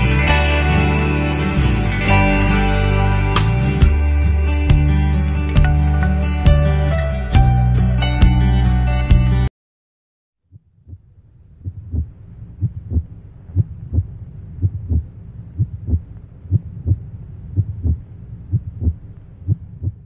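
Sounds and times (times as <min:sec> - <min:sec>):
heartbeat thumps: 0:05.6 - 0:06.7, 0:10.5 - 0:20.0
faint low hum: 0:10.5 - 0:20.0.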